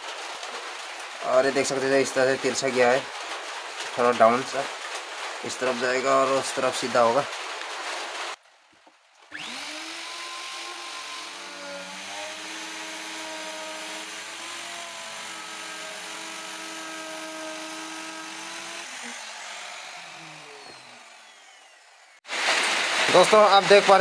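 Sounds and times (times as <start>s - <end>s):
electric router motor whine: 9.3s - 22.2s
cutter hissing in wood: 9.4s - 23.2s.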